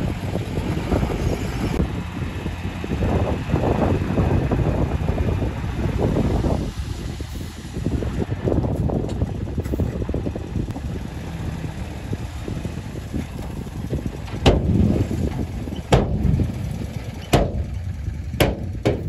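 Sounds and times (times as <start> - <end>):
excavator diesel engine rumbling: 0.0 - 19.0
sharp bangs: 15.8 - 19.0.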